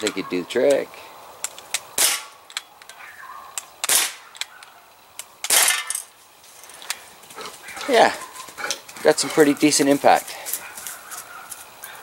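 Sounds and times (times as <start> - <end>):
bb pistol shots: 1.7 - 2.4, 3.8 - 4.5, 5.4 - 5.9.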